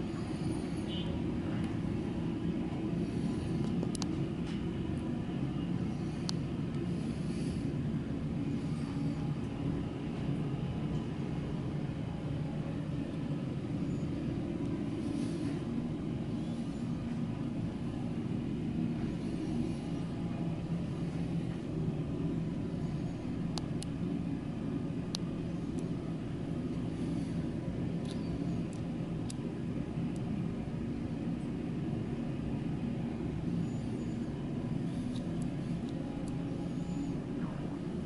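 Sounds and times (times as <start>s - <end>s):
faint hum: 0.0s - 38.0s
faint sharp clicks: 3.6s - 4.6s.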